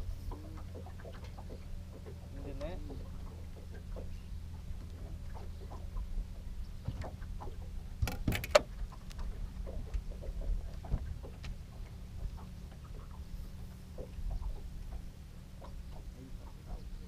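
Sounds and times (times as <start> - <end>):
low steady hum: 0.0 - 17.0
fishing gear knocking: 8.0 - 8.7.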